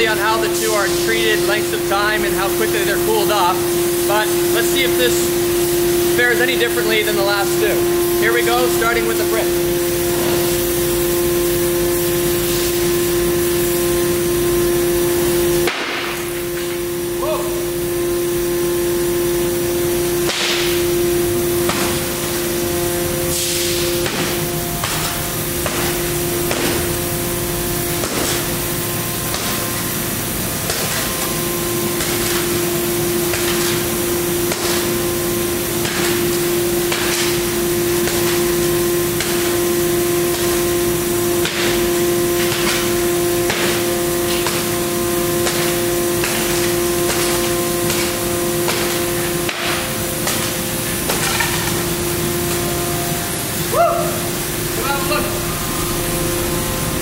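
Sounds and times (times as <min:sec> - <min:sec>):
steady hum and hiss: 0:00.0 - 0:57.0
hammer striking glass: 0:15.6 - 0:16.8, 0:20.2 - 0:20.8, 0:21.7 - 0:22.0, 0:24.0 - 0:26.9, 0:28.0 - 0:28.5, 0:36.9 - 0:37.4, 0:41.4 - 0:44.8, 0:45.4 - 0:50.5.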